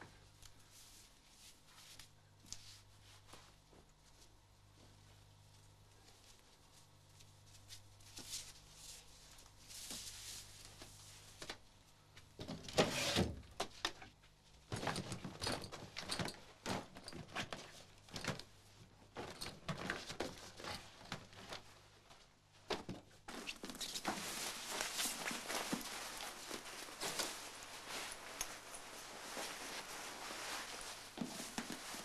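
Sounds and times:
clothes rustling: 19.0 - 32.0.

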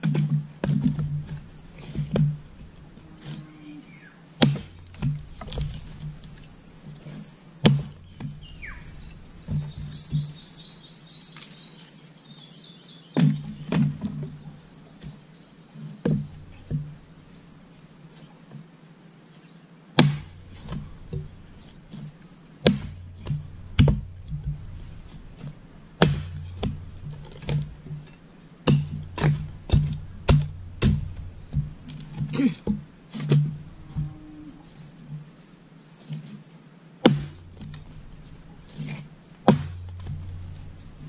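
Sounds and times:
axe chopping firewood: 0.0 - 3.4, 4.4 - 10.4, 13.2 - 15.2, 16.0 - 17.5, 20.0 - 34.1, 37.0 - 41.0
birds chirping: 0.0 - 41.0.

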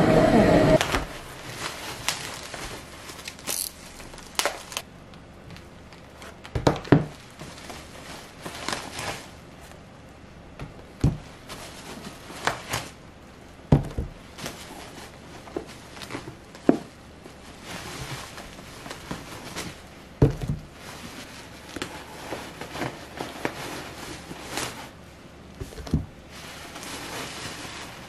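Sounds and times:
crinkling and rustling: 0.8 - 10.0, 10.6 - 28.0
books thumping on wooden table: 20.2 - 20.7.

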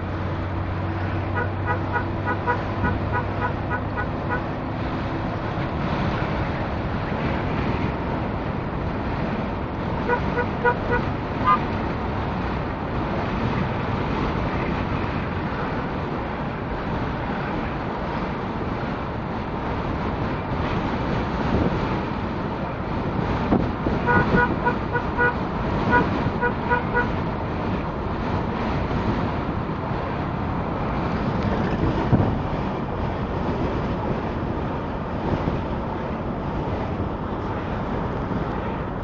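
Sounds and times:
engine and road noise: 0.0 - 39.0
car horns tooting: 1.2 - 4.6, 10.0 - 11.6, 23.9 - 27.2.

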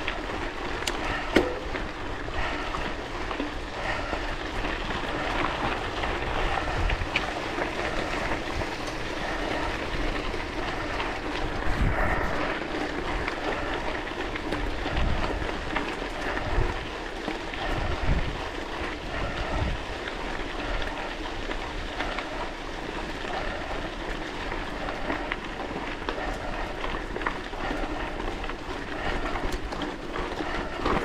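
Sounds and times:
bicycle tyres rolling on gravel: 0.0 - 31.0
bike rattles and clicks: 0.0 - 31.0
wind buffeting microphone: 0.0 - 31.0.

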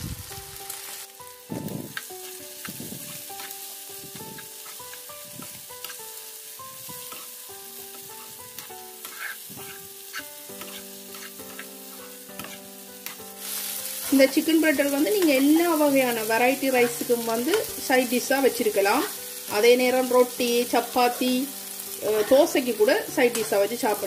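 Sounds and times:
chicken sizzling in frying pan: 0.0 - 24.0
metal spoon stirring and scraping: 1.9 - 17.8.

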